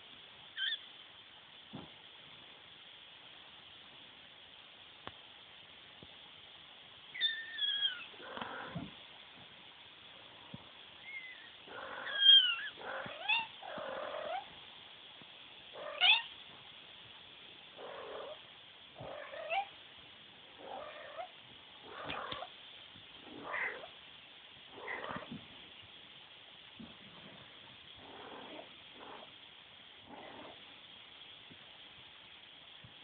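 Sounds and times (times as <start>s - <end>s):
kittens mewing and squeaking: 0.6s - 0.8s, 7.2s - 8.9s, 11.0s - 13.6s.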